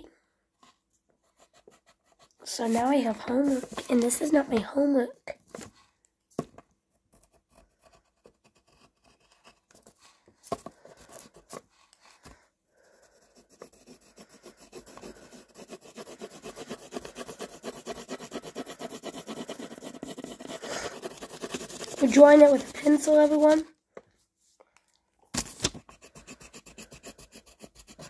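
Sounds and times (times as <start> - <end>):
pencil scratching on paper: 1.2 - 4.6, 7.1 - 23.7, 25.8 - 28.0.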